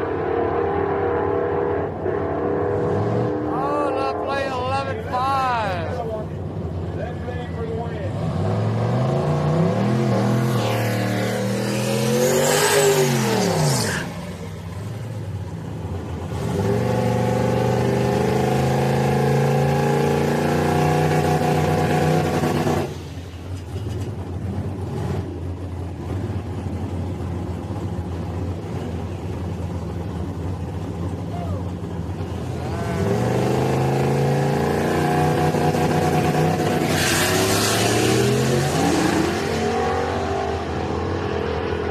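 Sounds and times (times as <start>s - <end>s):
truck engines revving: 0.0s - 41.9s
quieter engine running: 2.0s - 8.8s, 22.4s - 36.8s.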